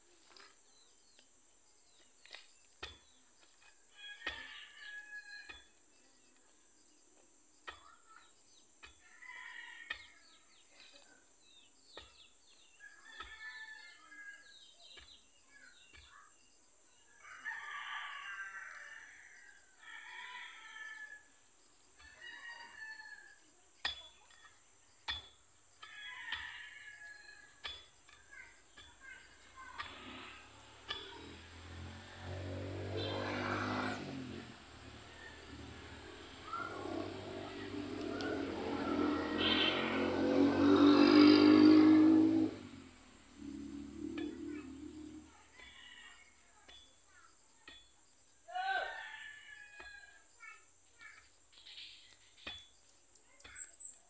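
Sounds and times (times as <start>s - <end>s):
rooster crowing: 17.2s - 21.3s, 32.0s - 42.8s, 48.5s - 50.2s
chickens calling: 35.1s - 42.6s.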